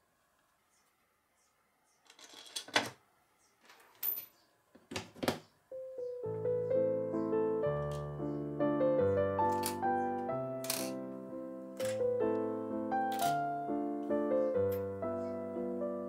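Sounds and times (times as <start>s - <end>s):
background piano music: 5.7s - 16.0s.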